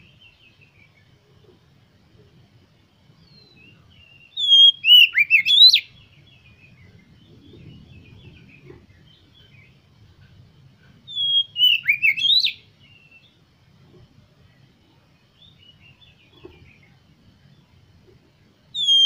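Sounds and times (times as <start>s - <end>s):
soft bird chirps: 0.0s - 19.0s
bird whistled song phrases: 3.3s - 6.8s, 11.1s - 13.3s, 18.7s - 19.0s.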